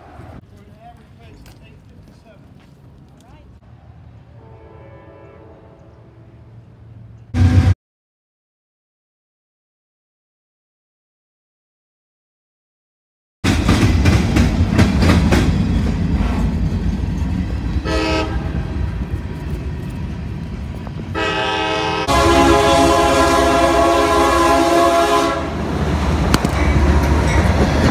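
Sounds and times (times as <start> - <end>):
freight train rumble: 0.0 - 7.8, 13.4 - 27.9
locomotive horn blasts: 4.4 - 6.6, 7.3 - 7.8, 17.8 - 18.8, 21.1 - 25.6
train wheels clacking over rail joints: 13.5 - 17.8, 26.2 - 27.9.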